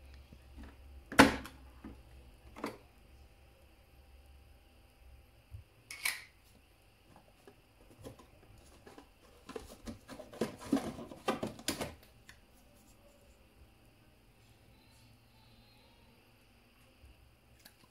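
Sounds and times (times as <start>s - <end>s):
cardboard box rustling: 7.8s - 11.9s.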